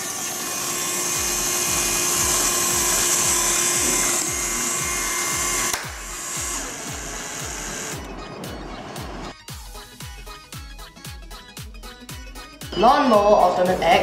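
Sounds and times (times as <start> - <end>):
electric motor whine: 0.0 - 9.3
background music with beat: 1.2 - 14.0.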